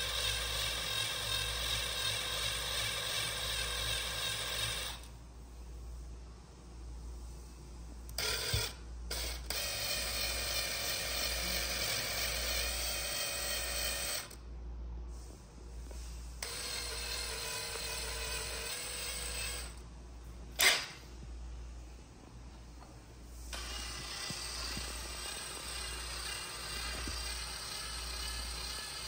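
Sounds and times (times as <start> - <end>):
cordless drill spinning: 0.0 - 5.1, 8.1 - 14.4, 16.4 - 19.8, 20.6 - 21.0, 23.5 - 29.0.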